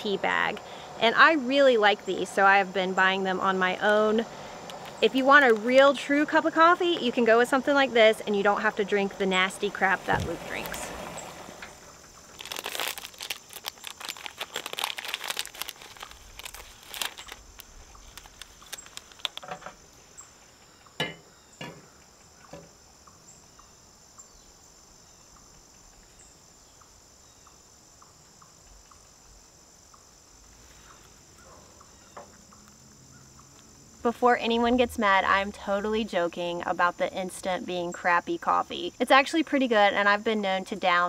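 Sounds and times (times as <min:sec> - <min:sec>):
insects chirring: 0:00.0 - 0:41.0
packet crinkling and tearing: 0:12.3 - 0:19.4.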